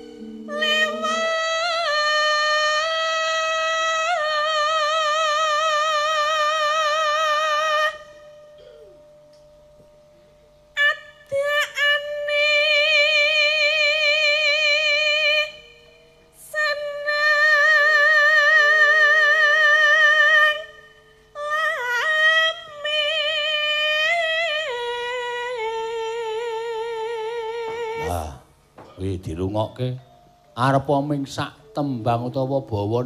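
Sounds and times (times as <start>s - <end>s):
woman singing with vibrato: 0.0s - 8.2s, 10.8s - 28.6s.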